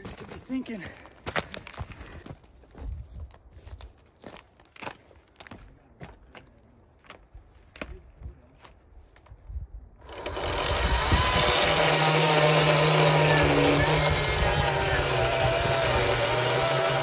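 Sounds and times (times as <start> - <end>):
knocks and steps on logs: 0.0 - 8.0
chainsaw cutting log: 10.0 - 17.0.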